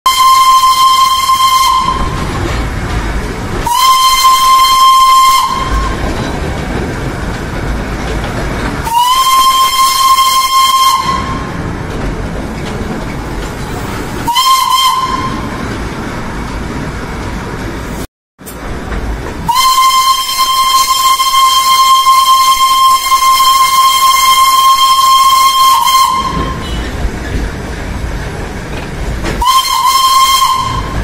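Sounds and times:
steam whistle blasts: 0.1 - 2.2, 3.6 - 6.0, 8.8 - 11.6, 14.2 - 15.6, 19.4 - 26.8, 29.4 - 31.0
train rumbling: 0.1 - 31.0.

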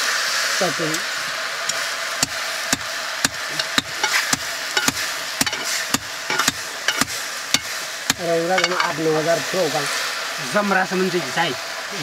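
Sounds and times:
food sizzling: 0.0 - 12.0
metal spoon knocking pot: 2.7 - 7.7, 8.5 - 9.0.

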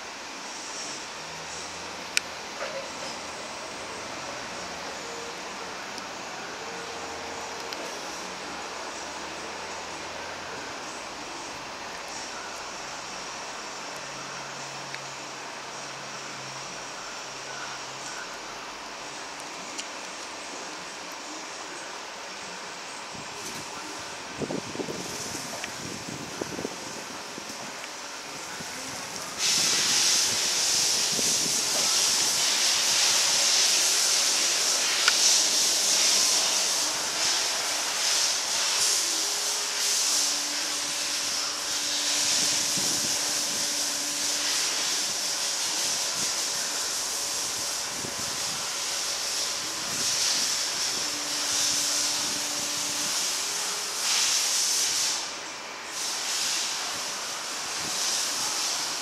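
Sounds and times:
low electric motor hum: 0.0 - 59.0
forklift hydraulics hissing: 23.4 - 59.0.

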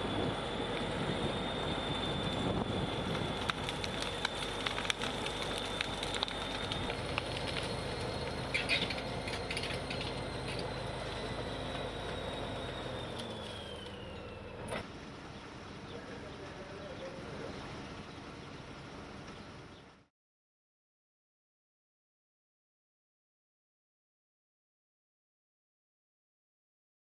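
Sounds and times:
high steady whine: 0.0 - 14.8
tracks clanking: 0.0 - 14.8
bulldozer diesel engine running: 0.0 - 20.1
branches snapping: 3.1 - 9.9.

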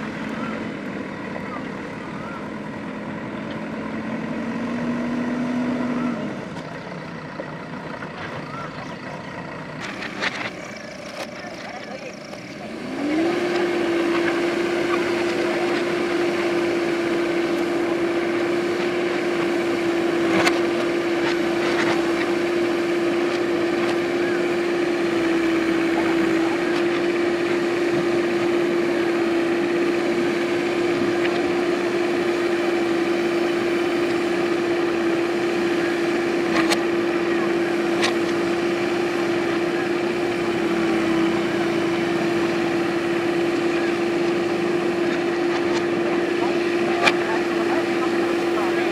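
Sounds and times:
diesel engine at high revs: 0.0 - 48.9.

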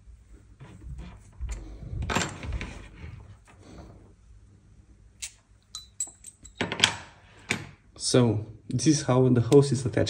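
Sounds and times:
metal parts clicking and clinking: 5.2 - 7.0
metallic ring: 5.7 - 6.6.

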